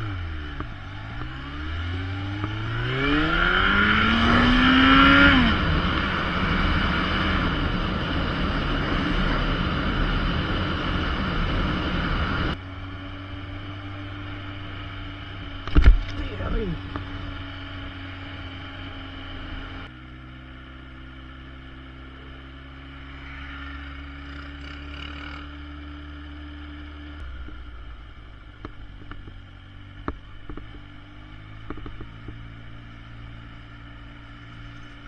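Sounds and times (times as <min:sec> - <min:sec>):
motorcycle engine running: 0:00.0 - 0:35.0
sharp clicks and knocks: 0:31.6 - 0:32.4.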